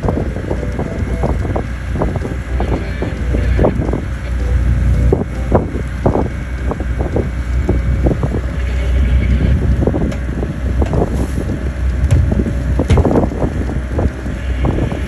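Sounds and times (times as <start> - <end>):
watercraft engine rumble: 0.0 - 15.0
wind buffeting microphone: 0.0 - 15.0
crackling knocks: 9.9 - 14.4.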